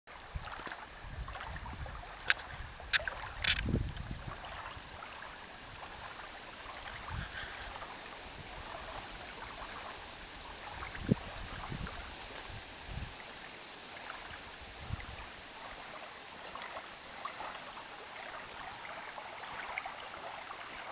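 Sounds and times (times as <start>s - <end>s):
small waves lapping: 0.1s - 20.9s
wind gusts on microphone: 0.2s - 5.0s, 6.6s - 13.2s, 14.6s - 15.4s
sharp clicks: 2.3s - 3.6s.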